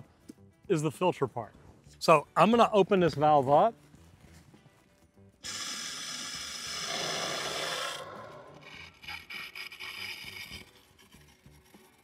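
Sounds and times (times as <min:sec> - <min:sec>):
air and water rushing through valve: 0:05.4 - 0:09.0.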